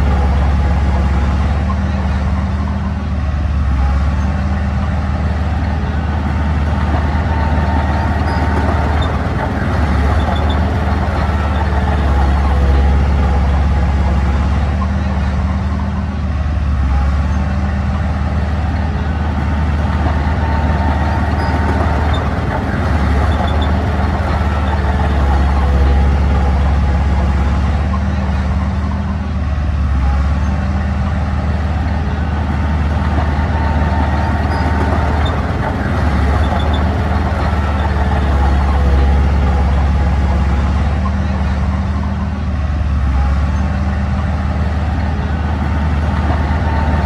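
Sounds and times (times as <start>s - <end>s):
diesel engine humming: 0.0s - 47.0s.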